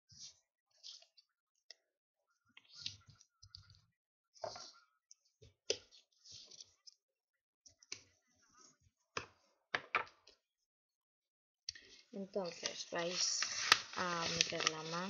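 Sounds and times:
paper rustling and crinkling: 12.4s - 15.0s.

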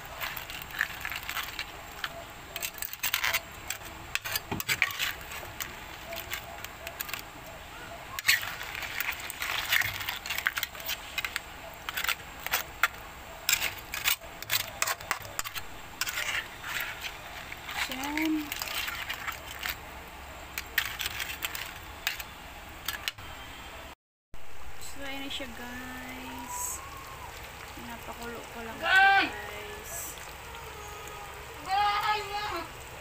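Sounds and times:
metal spatula scraping pot: 0.0s - 7.3s, 8.2s - 19.8s, 20.6s - 23.2s.

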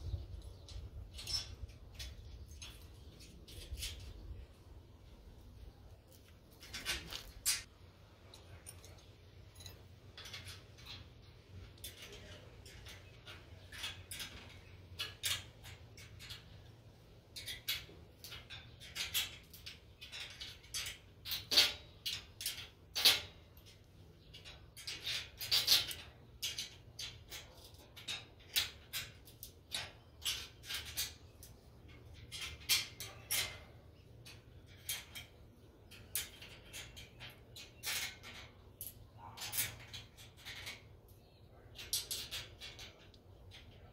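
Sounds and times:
wrench and bolts clinking on steel: 0.1s - 4.7s, 5.8s - 43.9s.

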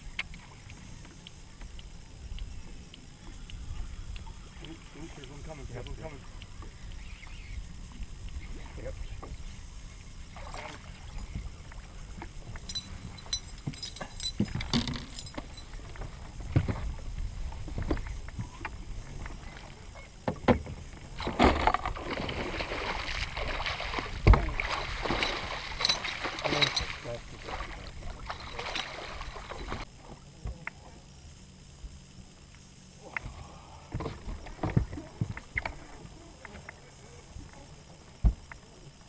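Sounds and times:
knocks and clicks on boat: 0.0s - 8.4s, 10.6s - 22.2s, 23.1s - 27.2s, 33.2s - 36.8s
fish thrashing and splashing: 21.2s - 29.8s.

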